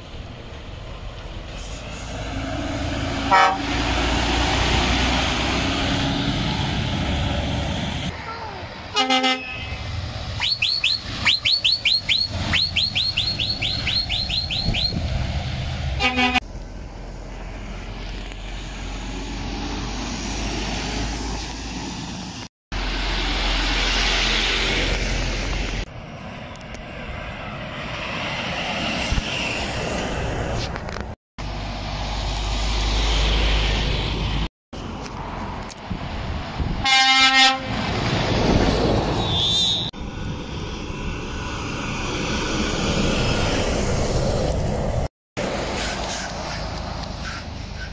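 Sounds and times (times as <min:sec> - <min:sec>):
lorries driving past: 0:00.0 - 0:47.9
short horn toot: 0:03.3 - 0:03.7
high chirping toots: 0:10.4 - 0:15.0.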